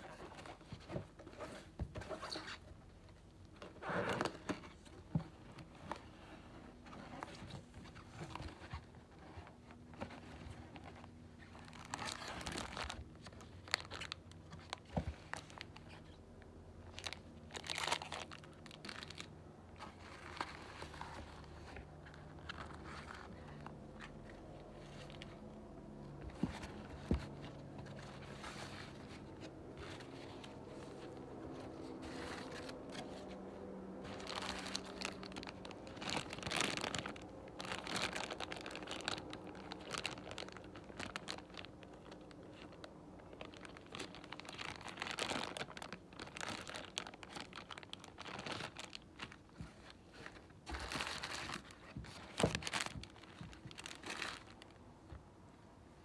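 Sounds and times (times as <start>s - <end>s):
plastic bag crinkling: 9.9s - 16.2s, 16.8s - 25.5s, 26.1s - 54.8s
food packaging rustling: 26.1s - 54.8s.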